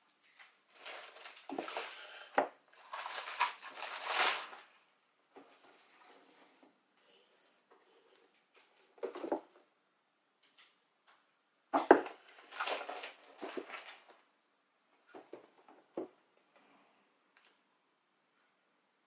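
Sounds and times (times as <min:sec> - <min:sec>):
rustling and scraping of boxes: 0:00.8 - 0:04.7, 0:05.4 - 0:09.7, 0:12.1 - 0:14.2.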